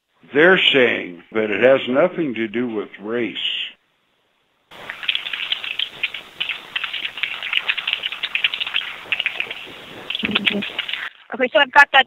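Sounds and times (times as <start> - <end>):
keyboard typing over telephone: 4.8 - 11.1.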